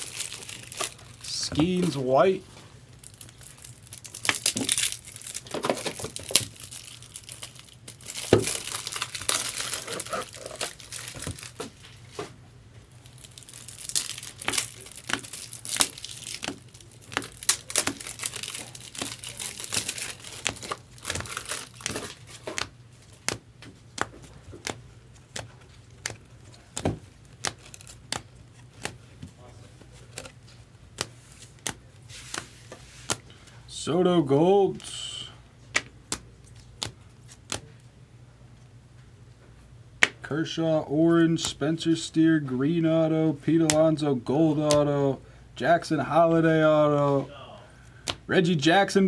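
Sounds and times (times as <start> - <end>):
plastic sleeves rustling: 0.0 - 33.8.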